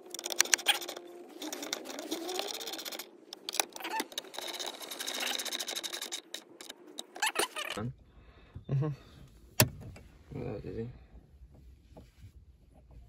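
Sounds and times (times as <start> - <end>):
tool clicking mechanically: 0.0 - 7.8.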